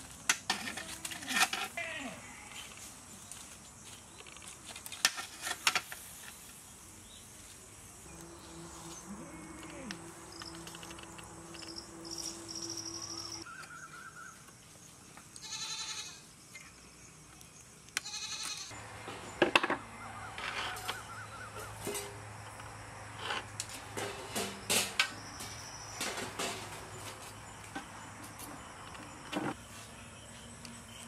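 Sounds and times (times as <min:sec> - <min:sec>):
animal bleats: 0:01.8 - 0:02.7, 0:08.5 - 0:10.1, 0:15.4 - 0:16.2, 0:18.0 - 0:18.8.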